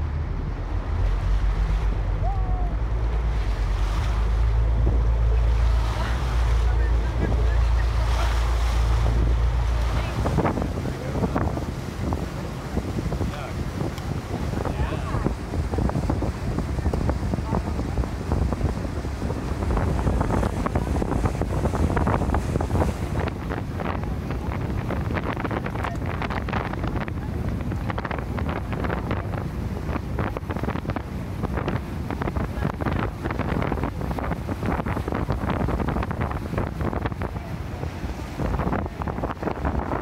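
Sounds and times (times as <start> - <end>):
boat and water rumble: 0.0 - 40.0
wind buffeting microphone: 0.0 - 40.0.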